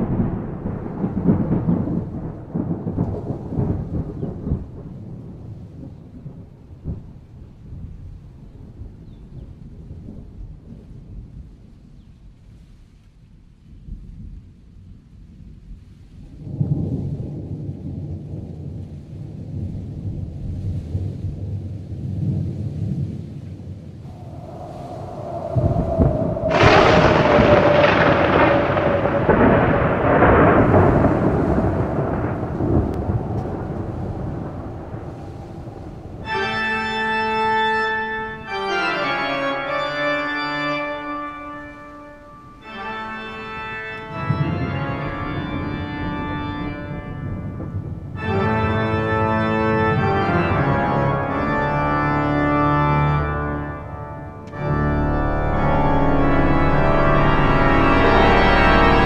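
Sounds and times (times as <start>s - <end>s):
thunder rumbling: 0.0s - 11.8s, 13.8s - 59.0s
organ chords: 36.2s - 59.0s.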